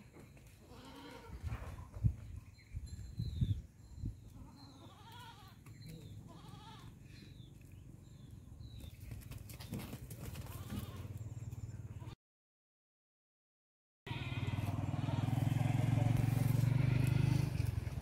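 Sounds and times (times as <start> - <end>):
goats bleating: 0.6 - 1.4, 4.4 - 5.6, 6.3 - 6.9, 14.1 - 17.7.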